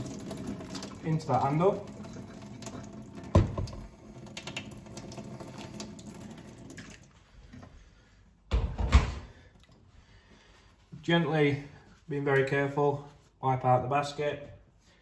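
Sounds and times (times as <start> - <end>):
water trickling into metal sink: 0.0 - 7.2
thud and splash: 3.3 - 3.8.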